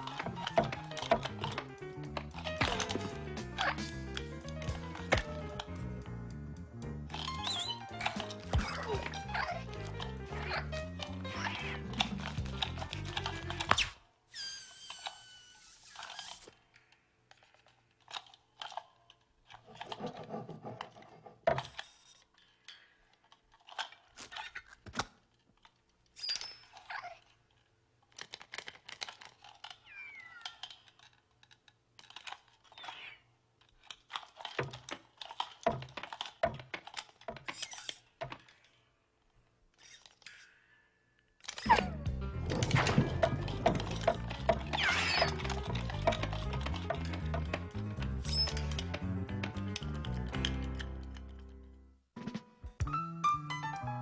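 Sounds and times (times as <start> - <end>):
metal spring joints squeaking: 7.1 - 16.5, 26.2 - 27.2, 37.2 - 38.2, 39.8 - 40.6, 41.5 - 49.0.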